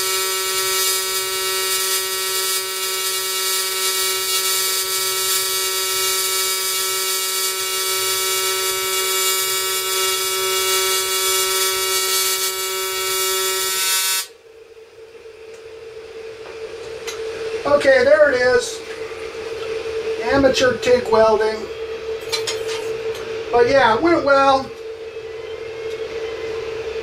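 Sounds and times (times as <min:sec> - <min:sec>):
welding arc buzzing: 0:00.0 - 0:14.4
faint hum: 0:14.3 - 0:27.0.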